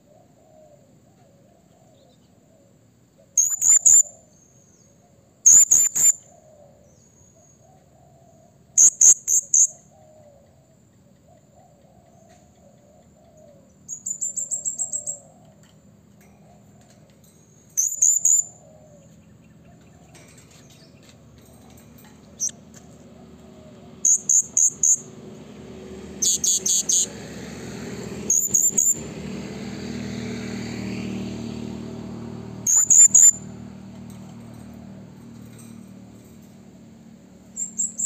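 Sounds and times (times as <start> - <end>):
faint bird warbling: 0.0 - 15.6, 32.7 - 33.5
parrot shrill calls: 3.4 - 4.1, 5.5 - 6.2, 32.7 - 33.4.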